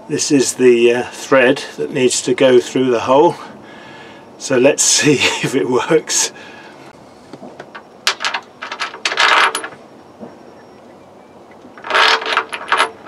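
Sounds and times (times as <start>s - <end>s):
metal bolt clicking and scraping: 7.6s - 9.8s, 11.8s - 13.0s.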